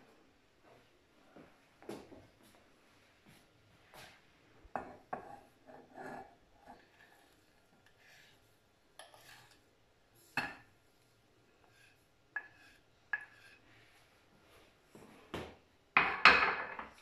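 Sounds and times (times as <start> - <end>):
wooden spoon scraping dish: 4.9 - 8.4, 9.0 - 9.6, 11.6 - 14.0.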